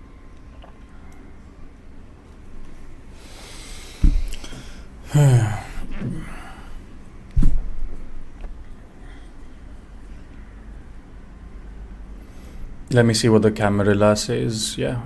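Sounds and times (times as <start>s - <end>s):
person breathing in: 3.2s - 6.8s
voiced exhalation: 3.2s - 6.9s
dull low thumps: 4.0s - 4.4s.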